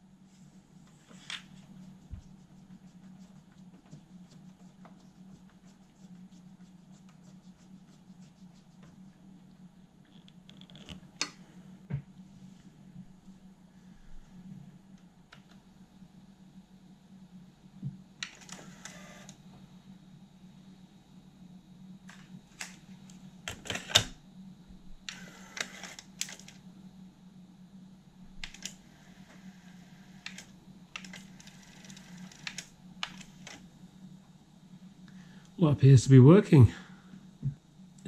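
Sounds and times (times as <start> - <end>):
faint low hum: 0.0 - 38.0
cassette mechanism whirring: 18.2 - 19.5, 22.0 - 24.2, 25.0 - 26.7, 28.3 - 33.9
cassette door ejecting and shutting: 23.5 - 24.2.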